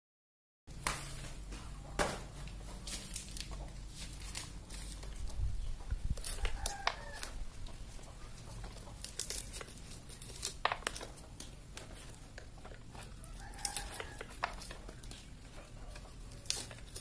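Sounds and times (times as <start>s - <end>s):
nut husks cracking and tearing: 2.9s - 7.8s, 8.4s - 17.0s.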